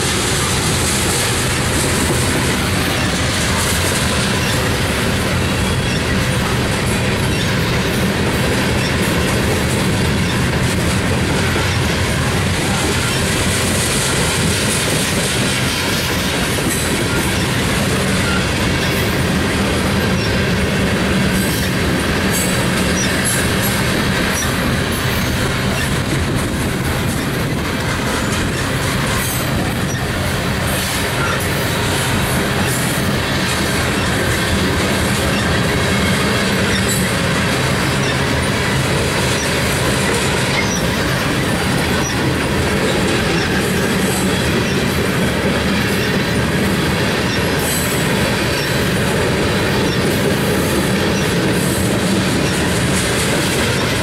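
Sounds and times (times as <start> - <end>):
freight train wheels rumbling on rail: 0.0 - 54.0.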